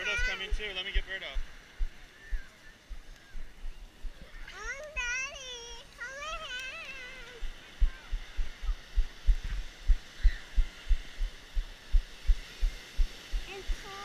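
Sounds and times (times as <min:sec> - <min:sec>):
child calling out: 0:00.0 - 0:00.4, 0:04.3 - 0:08.1, 0:13.5 - 0:14.0
faint surf: 0:00.0 - 0:14.0.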